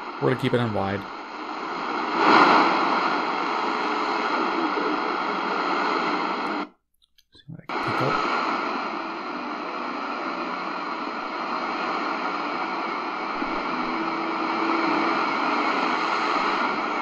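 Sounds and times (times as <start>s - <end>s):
radio static hiss: 0.0s - 6.7s, 7.3s - 17.0s
faint low radio tone: 0.0s - 17.0s.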